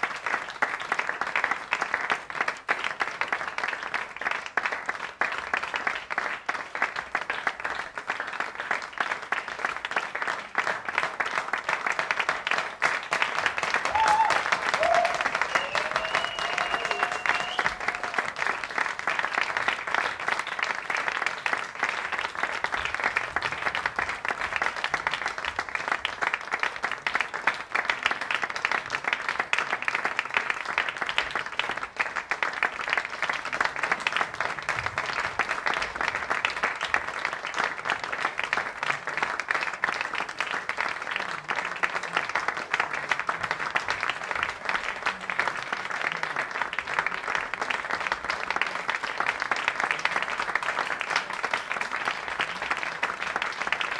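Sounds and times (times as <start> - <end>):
audience clapping: 0.0 - 53.9
high whoop: 13.8 - 18.4.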